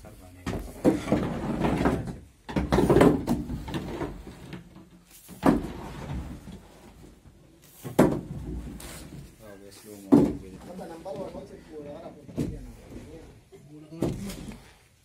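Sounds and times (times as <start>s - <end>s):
hard objects knocking: 0.4s - 4.2s.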